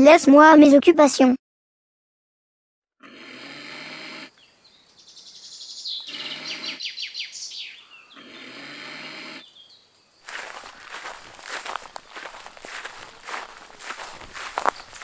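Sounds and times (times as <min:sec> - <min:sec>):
bird chirping: 0:04.3 - 0:12.2, 0:12.8 - 0:15.0.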